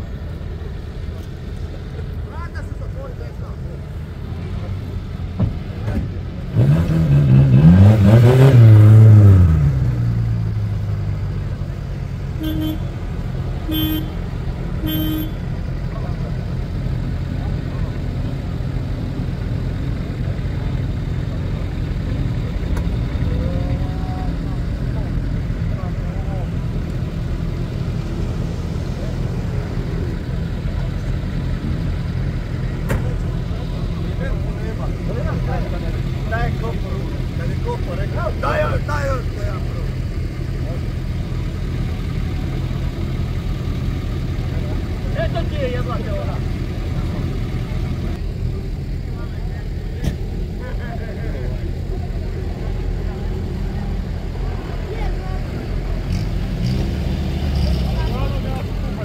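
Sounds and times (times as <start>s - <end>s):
off-road vehicle engine revving: 1.1s - 59.0s.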